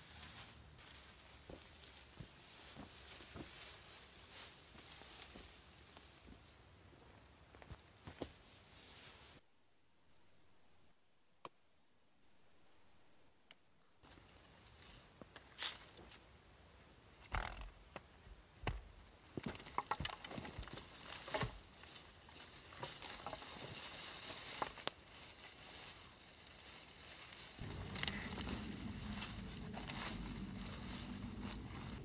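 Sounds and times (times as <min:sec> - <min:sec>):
dry twigs crackling and rustling: 0:00.0 - 0:06.5, 0:19.4 - 0:32.0
wooden sticks knocking and snapping: 0:19.5 - 0:21.6, 0:22.8 - 0:23.5
low rumble: 0:27.6 - 0:32.0.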